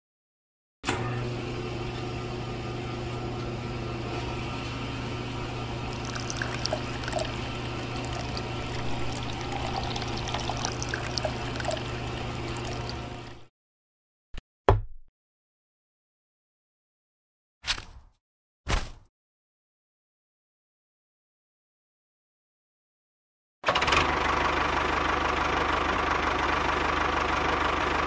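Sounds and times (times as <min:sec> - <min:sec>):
electric water pump humming: 0:05.9 - 0:13.5
water trickling and splashing: 0:05.9 - 0:13.5.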